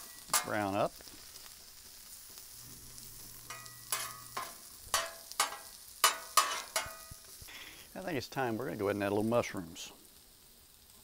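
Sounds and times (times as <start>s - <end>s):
metal spatulas scraping griddle: 0.0s - 0.7s, 2.8s - 7.2s
potatoes sizzling on griddle: 0.0s - 11.0s.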